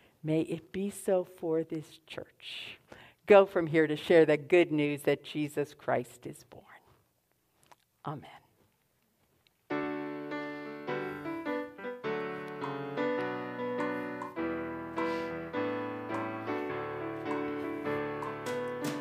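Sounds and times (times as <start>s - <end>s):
piano keyboard playing chords: 9.7s - 19.0s.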